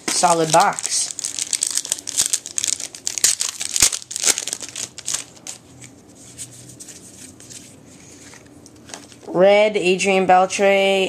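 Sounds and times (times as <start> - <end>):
foil wrapper tearing and crinkling: 0.1 - 5.6
cards rustling: 0.1 - 9.3.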